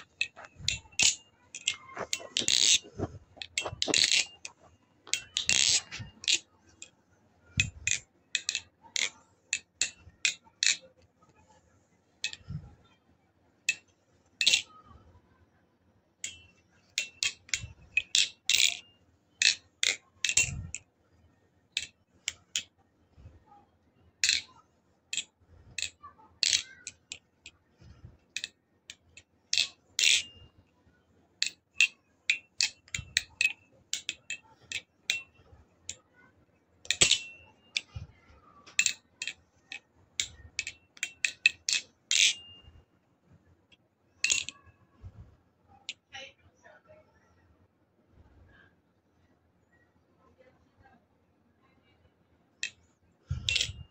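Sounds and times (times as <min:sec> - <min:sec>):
metallic clicks of knife trainer: 0:00.0 - 0:06.9, 0:07.5 - 0:10.8, 0:16.2 - 0:20.8, 0:31.4 - 0:36.0, 0:36.8 - 0:38.0, 0:38.6 - 0:42.8, 0:44.2 - 0:44.7, 0:52.6 - 0:53.9.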